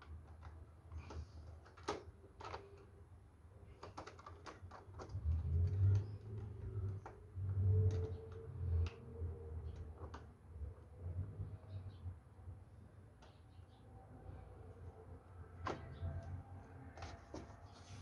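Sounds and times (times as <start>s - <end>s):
plastic parts clicking: 0.0s - 2.9s, 3.7s - 9.0s.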